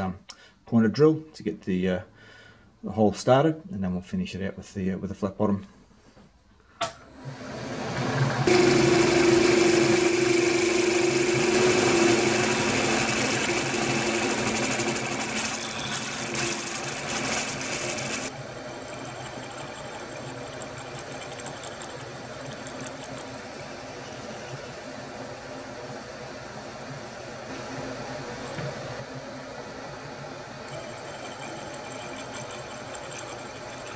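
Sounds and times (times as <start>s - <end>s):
milling machine hum: 7.2s - 33.9s
loud hiss of drilling: 8.5s - 18.3s.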